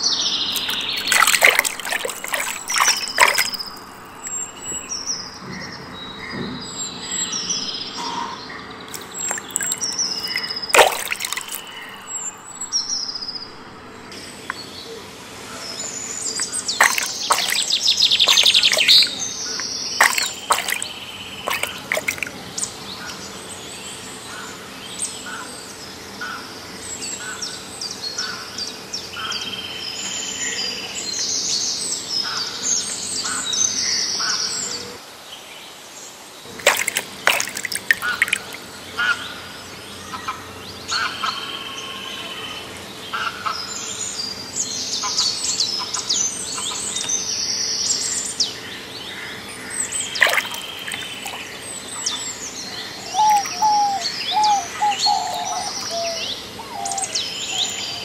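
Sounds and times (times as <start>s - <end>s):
birds chirping and calling: 0.5s - 6.5s, 16.3s - 23.2s, 49.6s - 58.0s.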